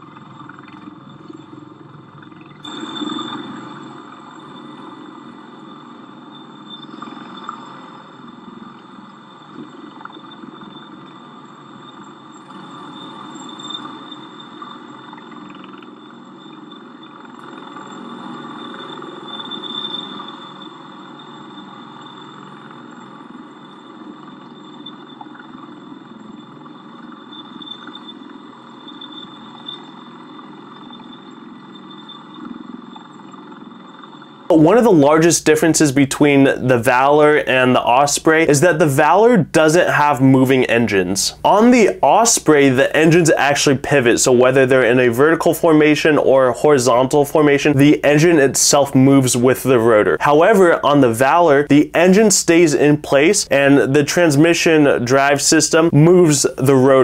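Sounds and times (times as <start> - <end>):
tiltrotor aircraft drone with whine: 0.0 - 57.0.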